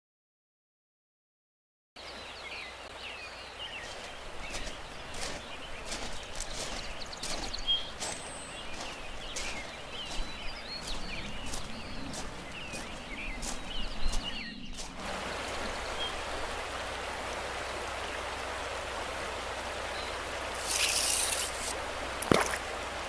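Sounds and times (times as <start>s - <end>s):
small birds chirping: 2.0s - 16.8s, 19.8s - 22.9s
background hiss: 15.0s - 23.0s.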